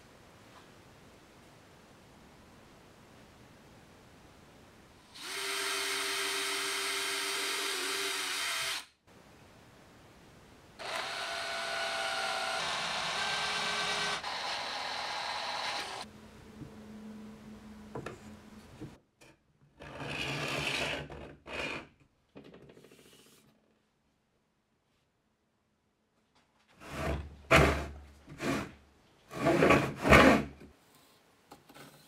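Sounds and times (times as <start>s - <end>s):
cordless drill driving screw: 10.8s - 16.0s.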